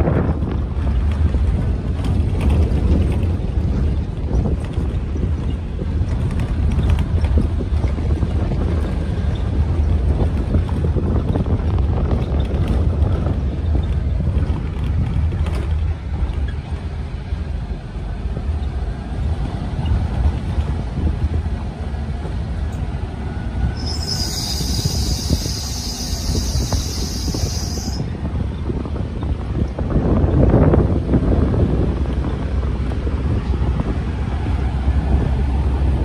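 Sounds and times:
vehicle rumbling over gravel: 0.0s - 22.5s
wind buffeting microphone: 0.0s - 36.0s.

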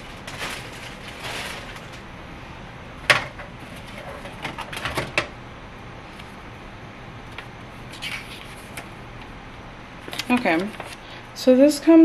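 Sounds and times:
paper sheet crinkling: 0.0s - 2.1s, 7.9s - 8.9s, 10.0s - 11.2s.

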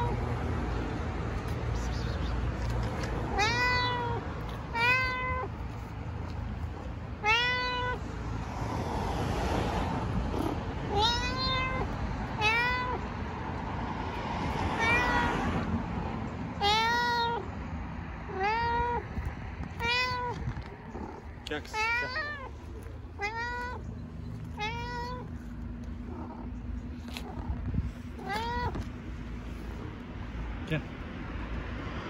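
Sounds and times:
cat meowing: 0.0s - 0.2s, 3.0s - 5.9s, 6.8s - 8.0s, 10.4s - 13.1s, 14.5s - 15.7s, 16.6s - 17.5s, 18.3s - 29.0s
rustling: 19.8s - 30.1s.

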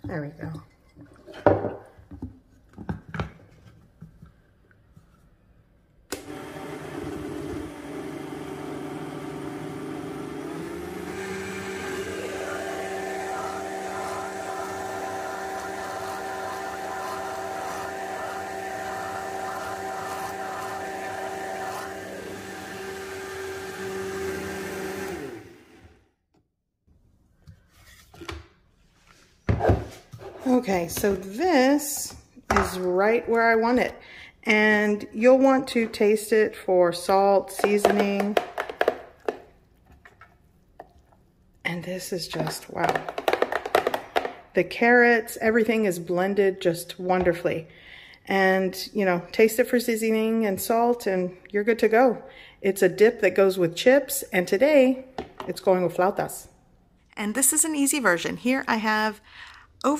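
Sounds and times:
blender running: 6.1s - 26.1s.

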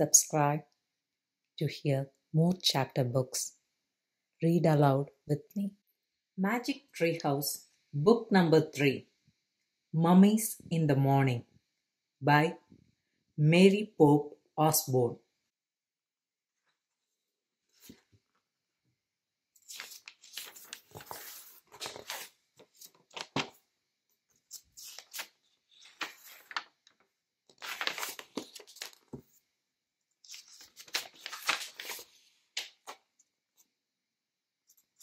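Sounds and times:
book pages rustling: 16.6s - 18.5s, 19.6s - 29.5s, 30.2s - 33.8s.

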